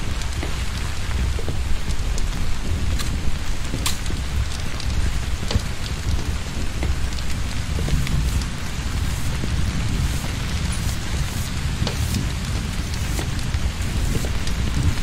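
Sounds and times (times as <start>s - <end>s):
heavy rain: 0.0s - 15.0s
raindrops ticking nearby: 0.0s - 15.0s.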